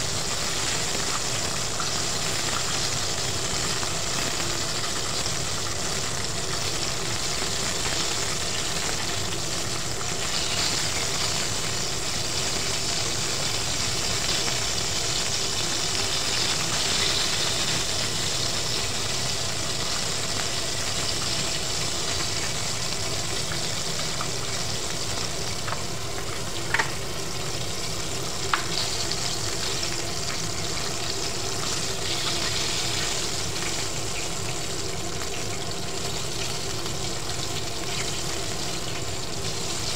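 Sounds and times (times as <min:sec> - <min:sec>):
chicken frying in hot oil: 0:00.0 - 0:39.9.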